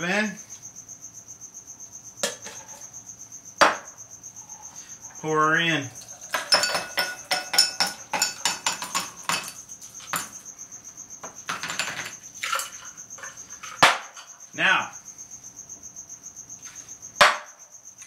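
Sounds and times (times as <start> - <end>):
drink pouring into glass: 6.0 - 9.4
ice rattling in cocktail shaker: 6.0 - 10.4, 11.5 - 13.8.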